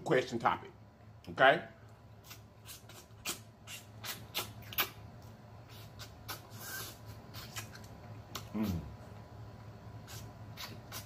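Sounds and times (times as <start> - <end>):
short slurp: 2.2 - 5.0, 5.7 - 7.8, 10.0 - 11.0
wet lip smacks and clicks: 2.2 - 8.8, 10.1 - 11.0.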